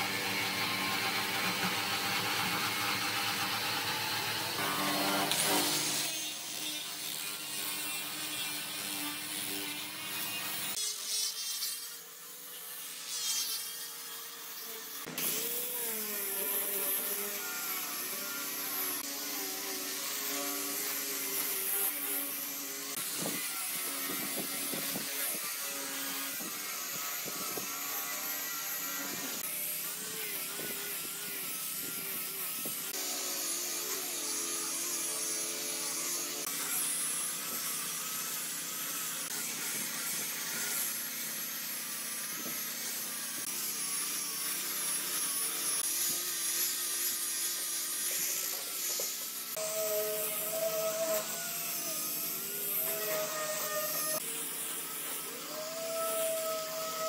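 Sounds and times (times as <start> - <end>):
angle grinder motor whine: 15.0 - 57.0.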